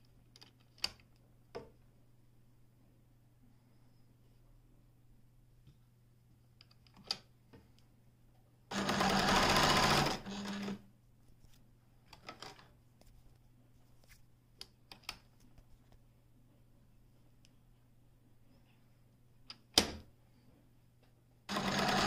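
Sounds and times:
sewing machine stitching: 8.7s - 10.8s, 21.5s - 22.0s.

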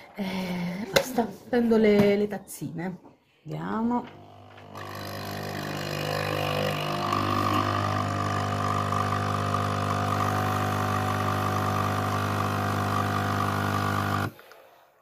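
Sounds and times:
coffee machine pump buzzing hum: 4.2s - 14.4s.

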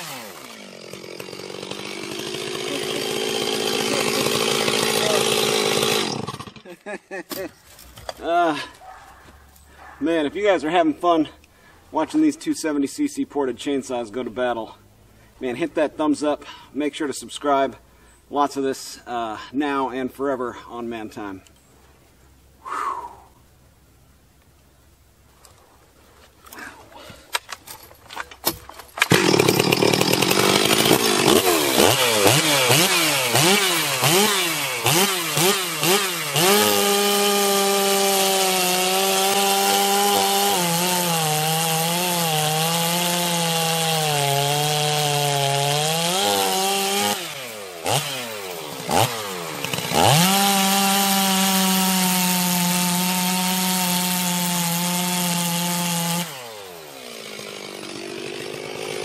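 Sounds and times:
chainsaw cutting firewood: 0.0s - 8.3s, 26.6s - 59.0s.

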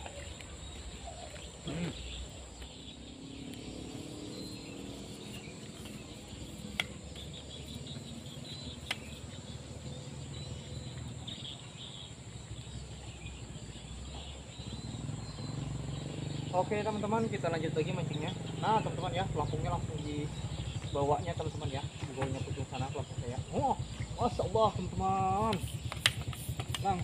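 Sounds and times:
bird chirps: 0.0s - 27.0s
insects droning: 0.0s - 27.0s
sharp clicks: 25.5s - 27.0s.

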